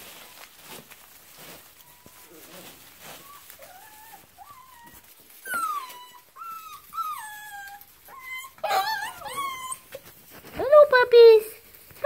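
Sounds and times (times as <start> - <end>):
puppies whining: 1.5 - 10.4.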